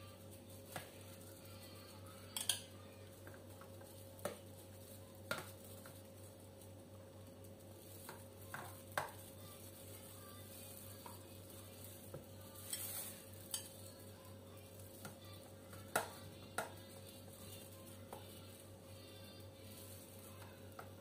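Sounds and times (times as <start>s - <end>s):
spoon clinking and scraping bowl: 12.6s - 14.0s.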